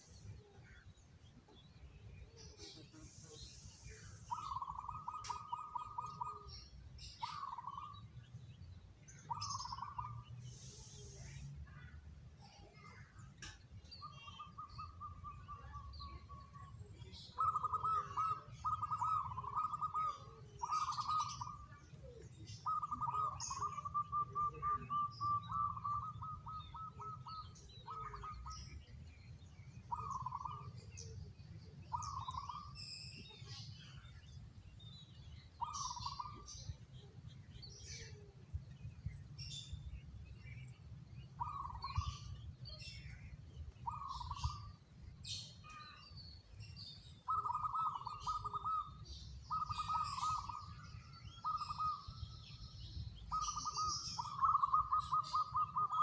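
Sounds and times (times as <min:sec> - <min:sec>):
dove cooing: 0:04.3 - 0:06.5, 0:17.4 - 0:28.7, 0:29.9 - 0:31.2, 0:35.6 - 0:36.4, 0:43.8 - 0:44.7, 0:47.3 - 0:50.7, 0:51.4 - 0:52.0, 0:53.3 - 0:56.0.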